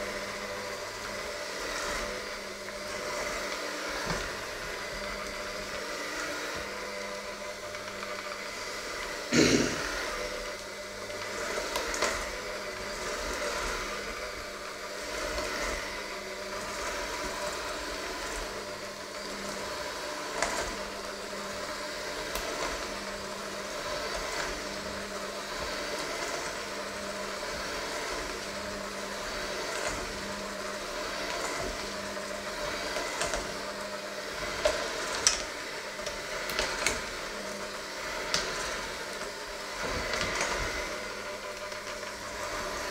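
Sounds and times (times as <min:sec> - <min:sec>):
electric hand mixer running: 0:00.0 - 0:42.9.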